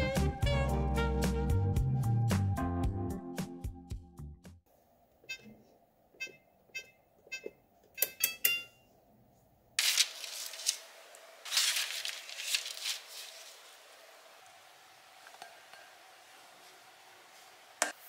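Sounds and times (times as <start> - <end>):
oven control panel beeps: 6.2 - 8.8
parchment paper rustling: 9.8 - 14.0.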